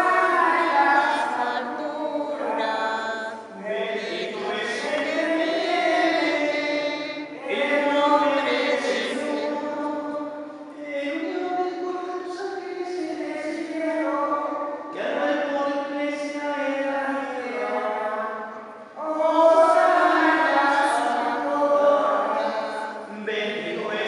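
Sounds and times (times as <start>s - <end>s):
church choir chanting: 0.0s - 24.0s.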